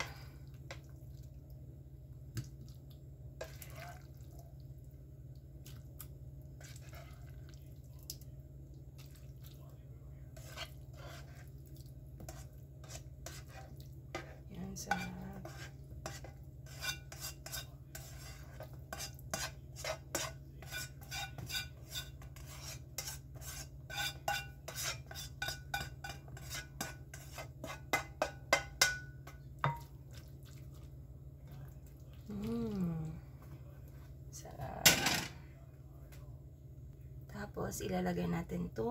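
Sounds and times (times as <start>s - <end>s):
spoon scraping and tapping pan: 12.2s - 30.0s.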